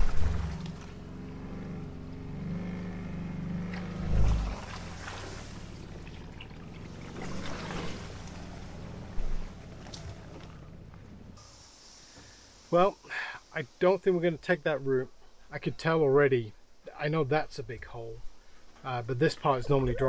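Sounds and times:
utility vehicle engine running: 0.0s - 11.4s.

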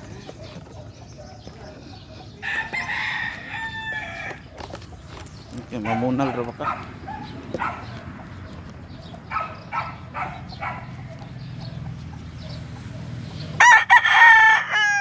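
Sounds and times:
rooster clucking: 0.0s - 15.0s
rooster crowing: 2.4s - 4.5s, 13.6s - 15.0s.

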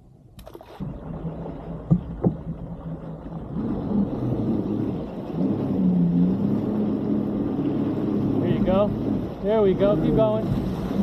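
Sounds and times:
jet ski engine revving: 0.7s - 11.0s
sharp knocks: 1.9s - 2.6s.

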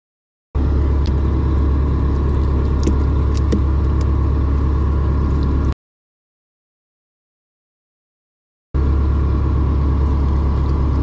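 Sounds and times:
low mechanical hum: 0.6s - 5.8s, 8.8s - 11.0s.

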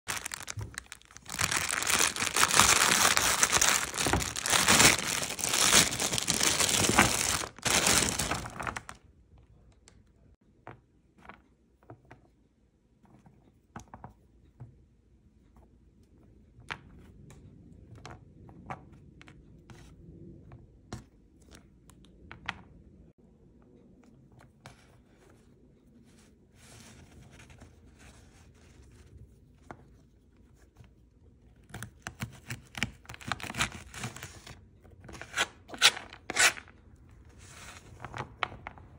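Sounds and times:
plastic bag crinkling: 0.1s - 9.0s.

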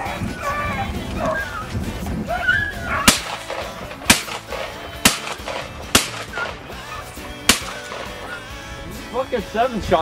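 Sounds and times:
shotgun shots: 3.1s - 6.8s, 7.5s - 8.3s.

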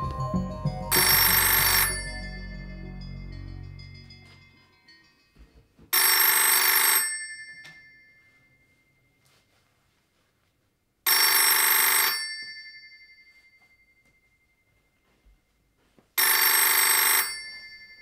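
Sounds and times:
telephone bell ringing: 0.9s - 4.4s, 5.9s - 8.8s, 11.1s - 13.7s, 16.2s - 18.0s.

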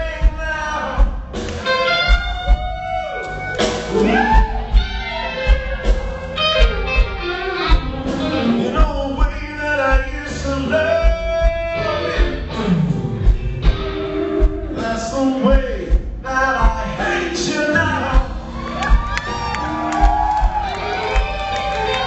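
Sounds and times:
bass: 0.0s - 22.0s
electric guitar lead: 1.6s - 8.9s, 10.7s - 14.8s, 17.3s - 22.0s
kick drum: 15.6s - 16.9s, 18.2s - 21.3s.

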